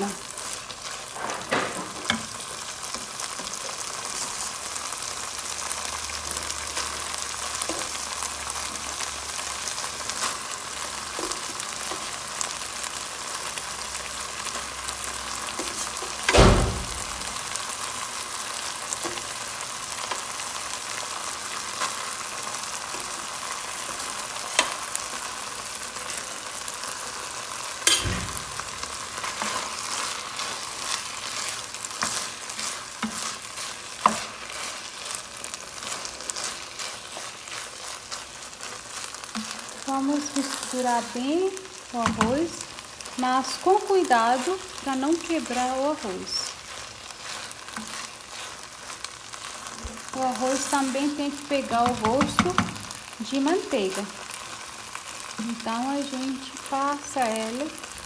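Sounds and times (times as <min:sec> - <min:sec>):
food sizzling in butter: 0:00.0 - 0:58.0
food thumping into pan: 0:27.8 - 0:29.8, 0:42.0 - 0:42.6, 0:51.8 - 0:53.0
wooden spoon stirring: 0:28.6 - 0:41.2, 0:42.0 - 0:53.2.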